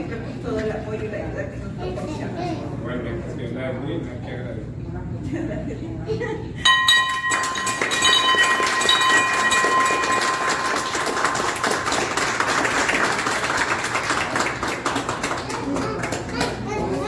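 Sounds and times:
wall-mounted bell ringing: 6.6 - 13.2
small group applauding: 6.9 - 17.0.

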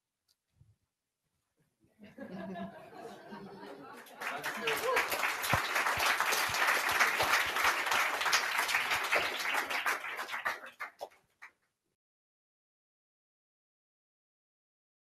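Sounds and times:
audience applause: 4.0 - 11.2.

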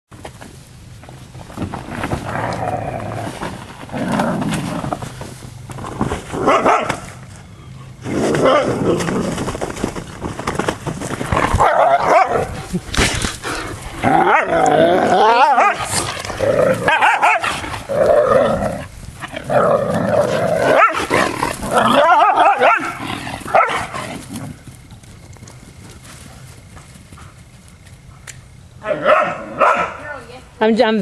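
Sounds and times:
puppies growling: 11.1 - 25.1
puppies barking and yipping: 20.2 - 24.3.

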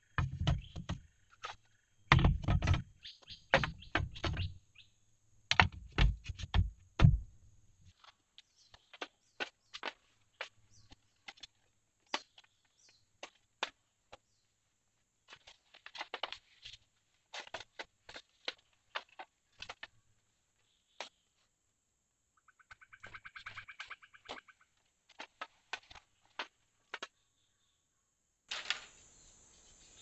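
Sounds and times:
bamboo knocks and taps: 0.1 - 4.6, 5.5 - 7.3.

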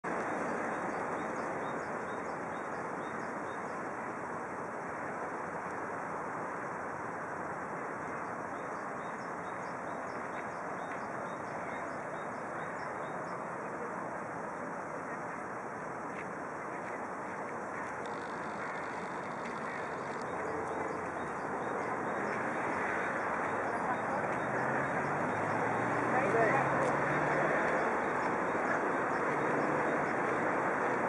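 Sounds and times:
distant road traffic: 0.0 - 31.0
bird chirping: 17.7 - 30.4.

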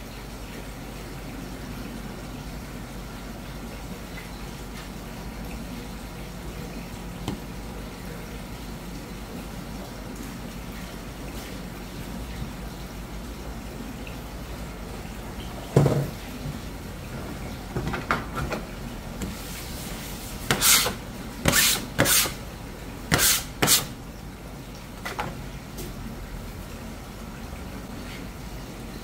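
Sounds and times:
knock on cutting board: 15.8 - 16.1
metal scraper on plastic board: 20.5 - 22.4, 23.1 - 23.9.

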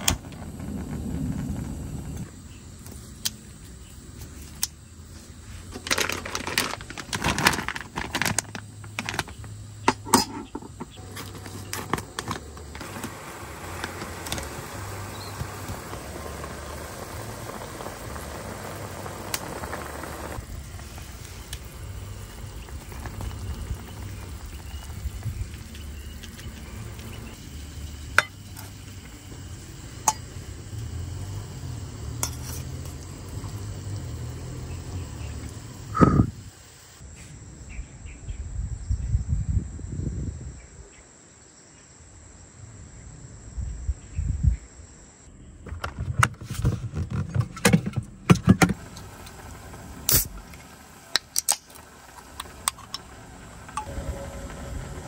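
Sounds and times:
low rumble: 0.0 - 2.8, 51.8 - 55.0
steady hiss: 0.0 - 9.6, 10.8 - 37.3, 48.7 - 55.0
camp gear clinking and knocking: 5.7 - 12.8.

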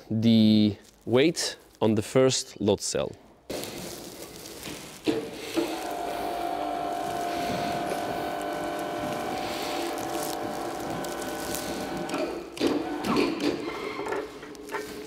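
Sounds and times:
electric chain hoist humming: 5.2 - 14.4.

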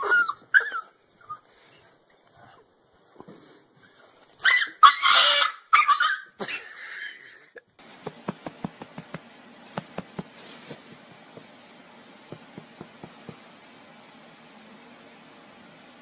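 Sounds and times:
faint hiss: 7.8 - 16.0
light sharp taps: 12.3 - 13.4.

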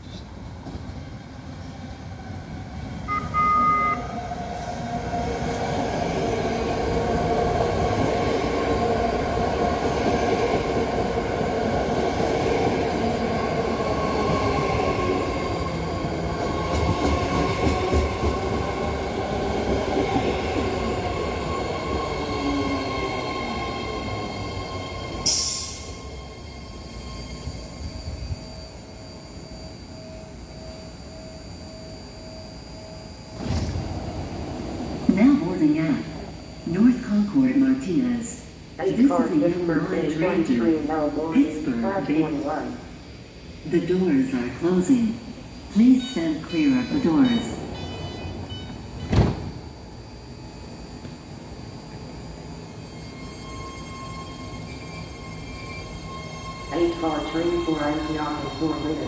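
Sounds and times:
train wheel rumble: 0.0 - 30.8
train two-tone horn: 3.1 - 4.2.

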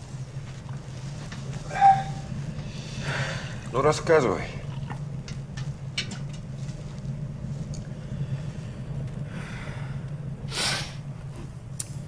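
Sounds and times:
low room hum: 0.0 - 12.0
soft breath: 1.6 - 3.7, 7.9 - 11.2.

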